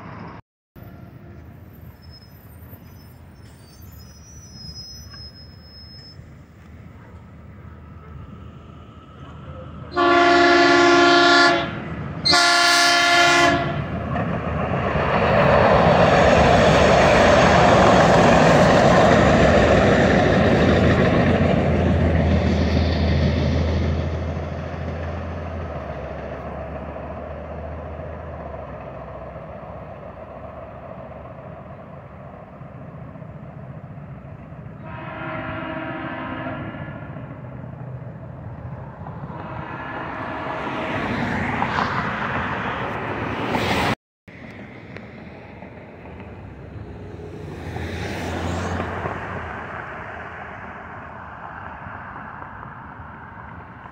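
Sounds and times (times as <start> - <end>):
train passing with low hum: 0.0 - 53.9
train horn blasts: 9.9 - 14.0, 34.8 - 37.4, 39.2 - 41.0.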